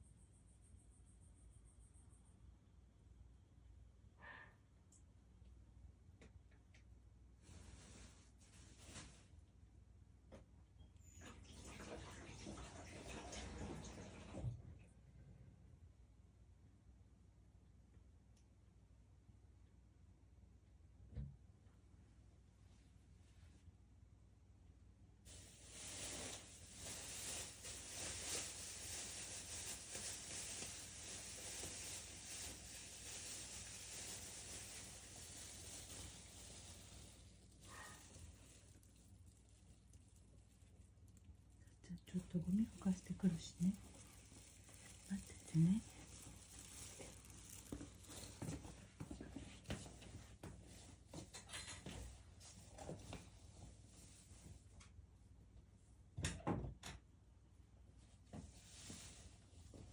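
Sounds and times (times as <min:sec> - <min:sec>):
faint rustling: 0:25.3 - 0:54.7
faint knocks and rustles: 0:43.7 - 0:54.9.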